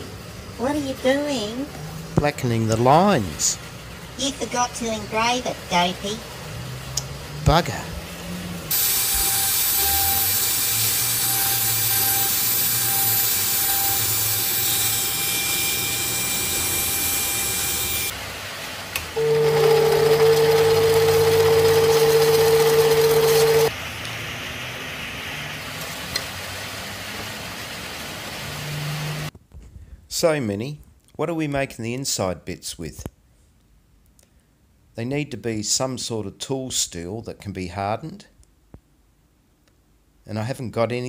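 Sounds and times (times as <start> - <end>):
engraving tool whining and hissing: 8.7 - 18.1
machine motor hum: 19.1 - 23.7.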